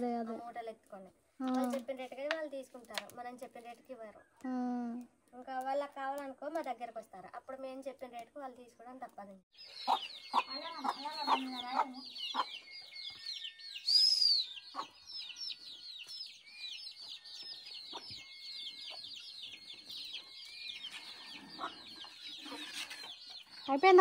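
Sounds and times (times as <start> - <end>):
chickens peeping: 9.6 - 24.0.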